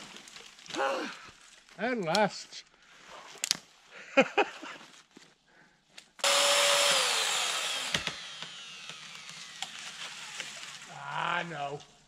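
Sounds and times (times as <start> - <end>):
chainsaw revving: 6.2 - 10.9.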